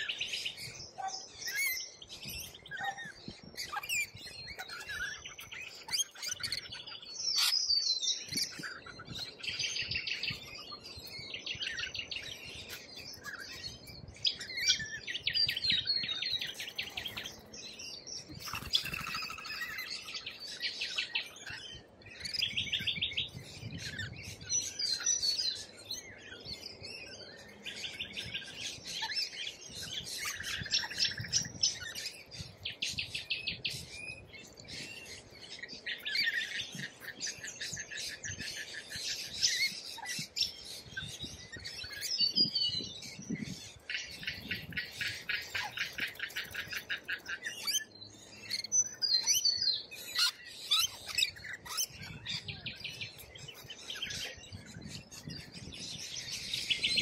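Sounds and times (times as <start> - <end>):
parrots chattering and screeching: 1.4 - 1.8, 2.4 - 6.6, 50.0 - 52.6.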